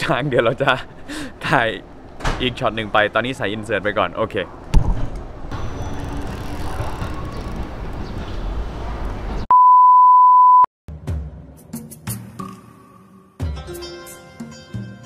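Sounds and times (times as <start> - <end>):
electronic beep: 9.5 - 10.7
background music: 10.9 - 15.0.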